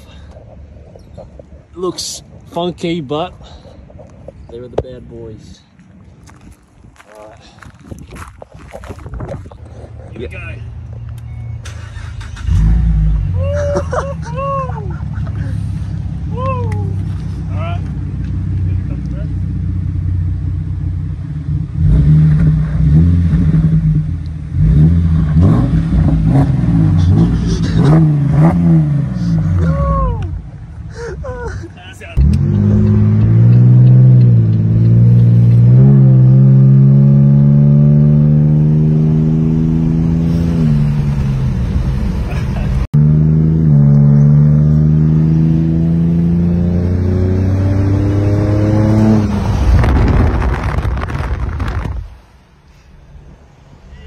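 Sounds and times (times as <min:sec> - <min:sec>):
loud car engine revving: 0:11.8 - 0:13.4, 0:21.2 - 0:29.8, 0:32.2 - 0:42.2, 0:42.9 - 0:51.6
rough crackly rushing noise: 0:49.5 - 0:52.4.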